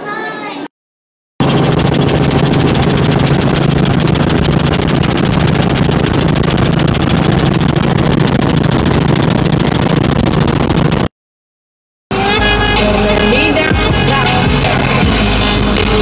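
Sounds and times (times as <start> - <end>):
helicopter engine and rotor: 1.4 - 11.1.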